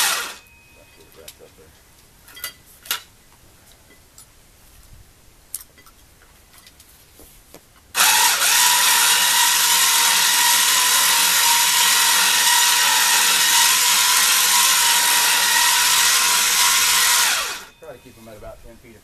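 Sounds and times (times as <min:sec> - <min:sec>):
electric winch whining: 0:00.0 - 0:00.4, 0:08.0 - 0:18.0.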